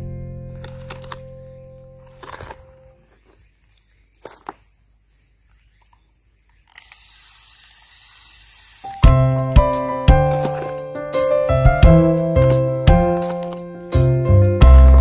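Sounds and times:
hands rustling soil: 0.5s - 4.8s, 9.3s - 14.2s
hose nozzle hissing: 6.5s - 11.6s
piano music: 9.0s - 15.0s.

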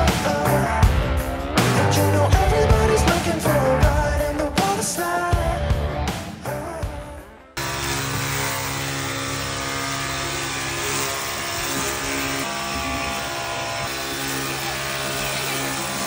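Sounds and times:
cordless drill motor whine: 7.6s - 16.0s.

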